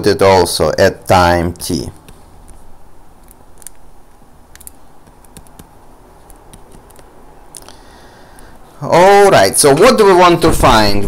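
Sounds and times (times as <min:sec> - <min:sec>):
stylus ticking and scratching on tablet: 0:01.5 - 0:07.7.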